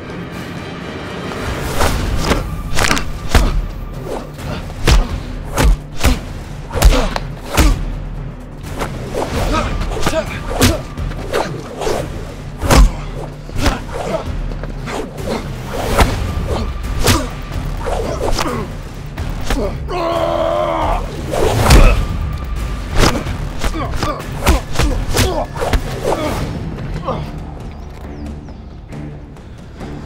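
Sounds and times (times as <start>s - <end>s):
punch impacts: 4.8s - 6.2s, 6.8s - 7.8s, 12.6s - 13.8s.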